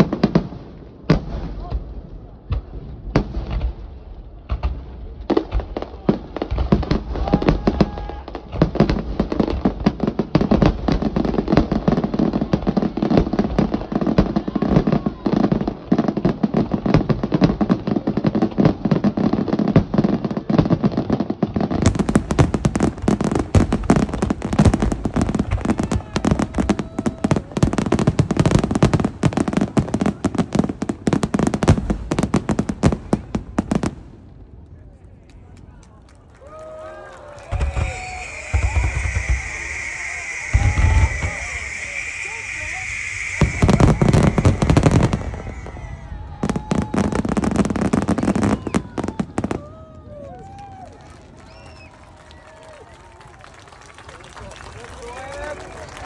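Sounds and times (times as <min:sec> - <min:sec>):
fireworks bangs and crackling: 0:00.0 - 0:56.0.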